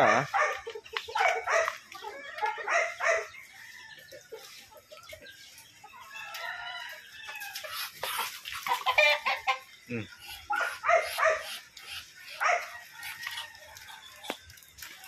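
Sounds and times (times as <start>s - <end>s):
chickens clucking: 0.0s - 15.0s
rooster crowing: 6.0s - 7.6s, 12.4s - 14.2s.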